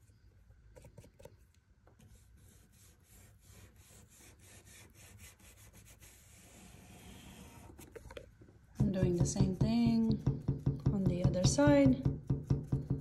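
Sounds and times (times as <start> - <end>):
brush scrubbing on wood: 2.0 - 7.6.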